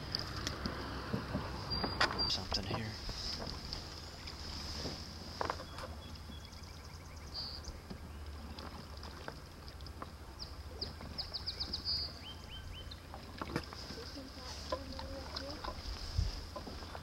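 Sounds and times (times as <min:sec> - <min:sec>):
small birds chirping: 0:01.6 - 0:04.6, 0:05.6 - 0:08.7, 0:09.7 - 0:15.9.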